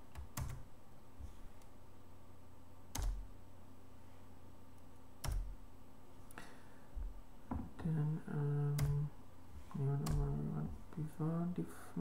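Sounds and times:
keyboard typing: 0.0 - 0.6, 2.9 - 3.3, 5.2 - 5.6, 8.7 - 9.1, 9.8 - 10.5.

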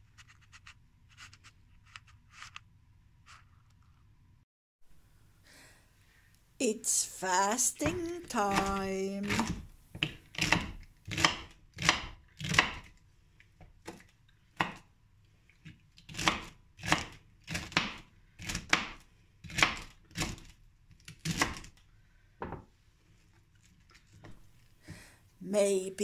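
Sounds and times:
knife chopping celery: 7.8 - 12.9, 16.0 - 21.7.

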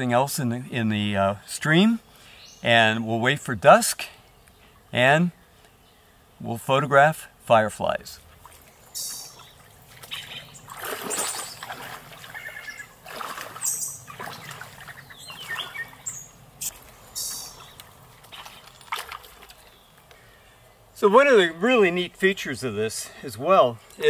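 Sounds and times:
splashing footsteps in water: 8.2 - 20.1.

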